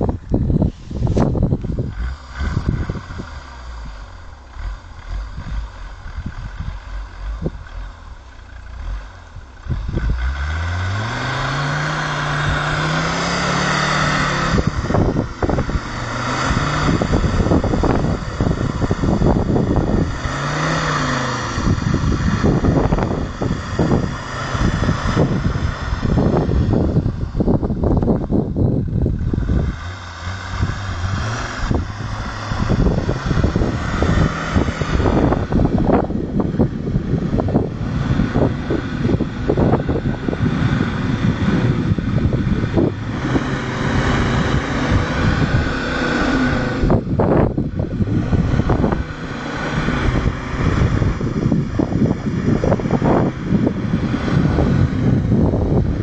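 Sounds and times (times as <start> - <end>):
engine revving under load: 0.0 - 56.0.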